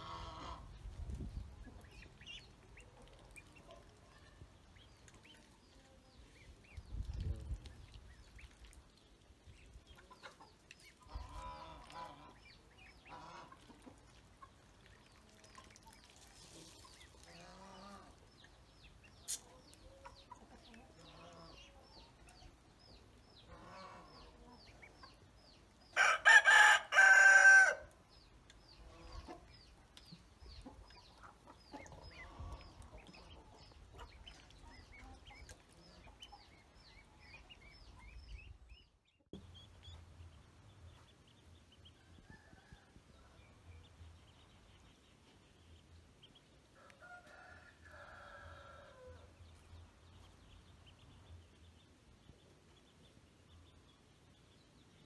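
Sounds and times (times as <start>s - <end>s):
chickens and ducklings clucking: 0.0s - 55.0s
rooster crowing: 26.0s - 27.9s.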